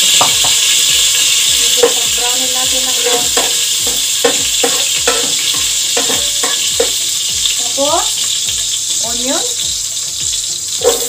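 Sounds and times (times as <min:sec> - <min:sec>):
garlic sizzling in oil: 0:00.0 - 0:11.0
metal utensil scraping pot: 0:00.2 - 0:08.3.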